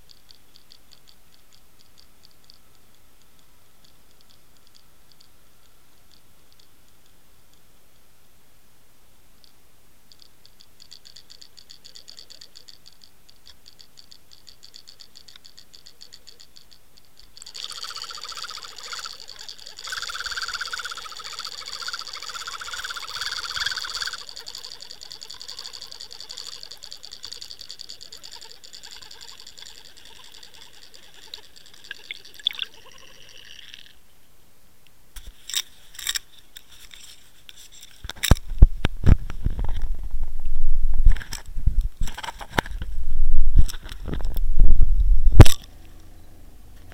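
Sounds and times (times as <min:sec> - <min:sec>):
sharp clicks: 0:00.0 - 0:08.1, 0:09.4 - 0:33.0, 0:37.7 - 0:39.9, 0:41.0 - 0:46.1
faint regular ticking: 0:00.0 - 0:08.5, 0:09.2 - 0:34.0
mechanical whirring with high whine: 0:13.7 - 0:33.8.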